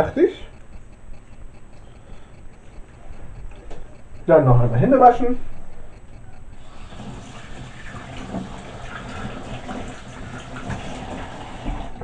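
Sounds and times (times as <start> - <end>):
water running from a tap: 6.6 - 12.0.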